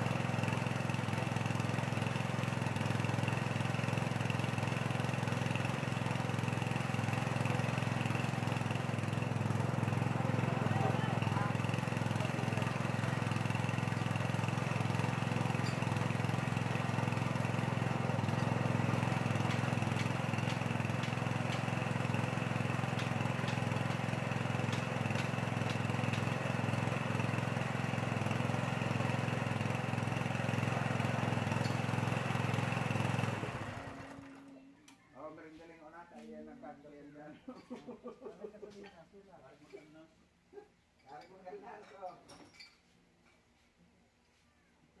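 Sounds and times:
small engine running: 0.0s - 34.6s.

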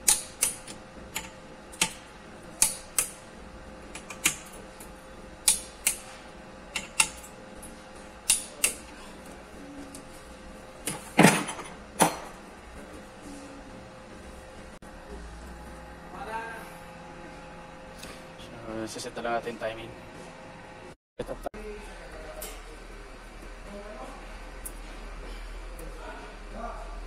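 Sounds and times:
metal tool clicking on metal: 8.2s - 8.8s.

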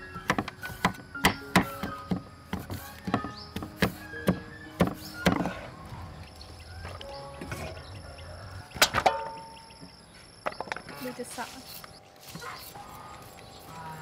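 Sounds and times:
cleaver chopping on wooden board: 0.2s - 5.6s.

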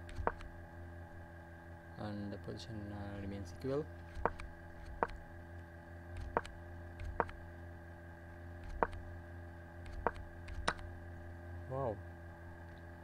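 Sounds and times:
sharp short clicks: 0.0s - 0.5s, 6.2s - 7.4s, 8.6s - 9.0s, 9.8s - 10.9s
low electrical hum: 0.0s - 13.0s.

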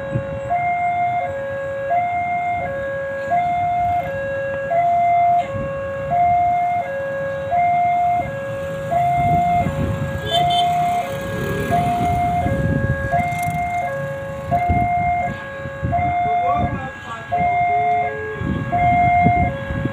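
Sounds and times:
level crossing two-tone alarm: 6.1s - 19.9s.

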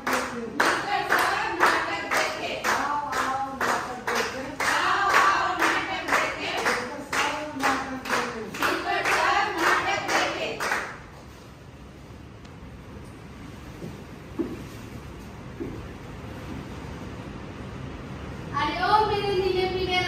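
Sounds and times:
people clapping in time: 0.0s - 11.3s
voices singing along: 0.5s - 10.8s.

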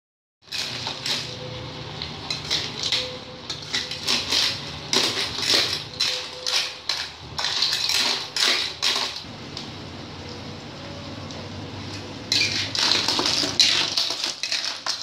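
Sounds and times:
shells clattering in metal wok: 2.2s - 9.2s.

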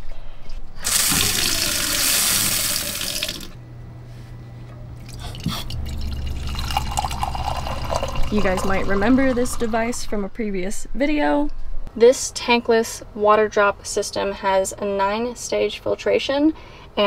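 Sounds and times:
faucet running into a glass: 0.8s - 3.5s, 5.1s - 9.8s.

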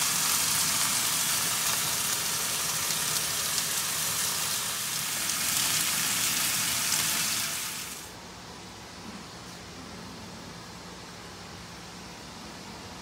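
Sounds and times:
steaks sizzling in a grill pan: 0.0s - 8.0s.

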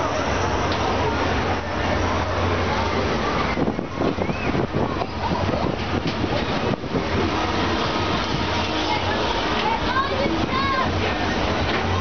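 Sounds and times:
faint hubbub of voices: 0.0s - 12.0s
wind buffeting microphone: 0.6s - 12.0s.

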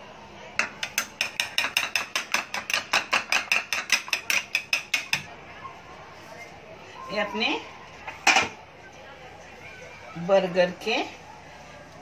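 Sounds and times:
egg beaten in a bowl: 0.6s - 5.3s.

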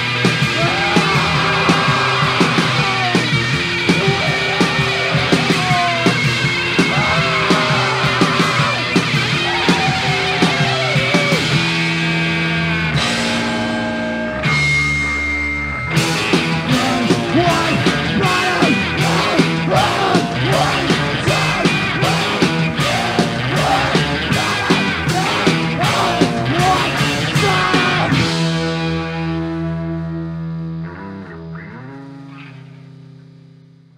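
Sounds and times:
fast drum beat: 0.0s - 11.8s, 16.0s - 28.6s
distorted electric guitar: 0.0s - 33.9s.

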